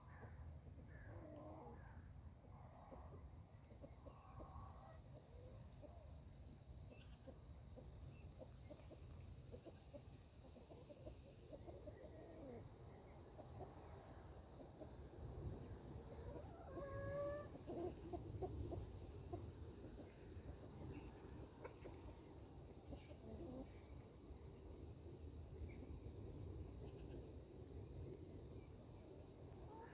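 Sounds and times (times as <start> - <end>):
chickens clucking: 2.5 - 26.1
drawn-out chicken call: 16.1 - 19.6.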